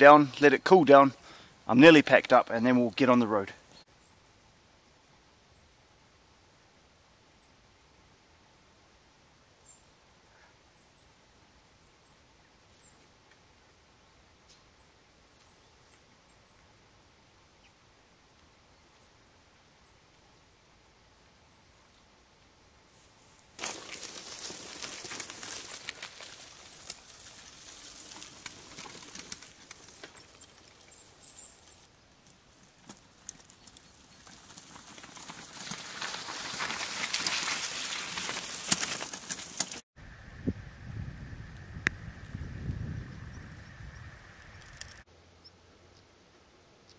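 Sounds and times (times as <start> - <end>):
bike tyres rolling over muddy track: 23.3 - 39.8
stones clicking and crackling: 23.6 - 39.8, 44.6 - 45.0.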